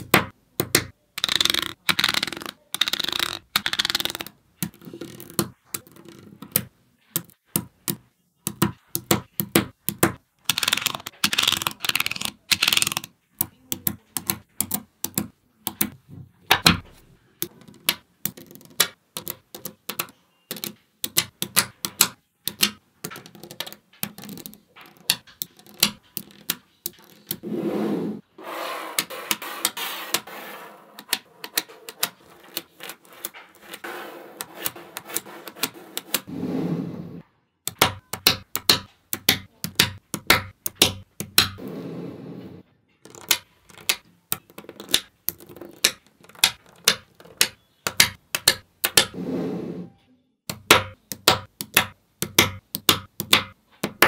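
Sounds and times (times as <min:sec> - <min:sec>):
magnetic balls clicking: 0:00.0 - 0:16.8, 0:17.4 - 0:27.4, 0:37.6 - 0:41.6, 0:43.0 - 0:49.2, 0:50.5 - 0:54.0.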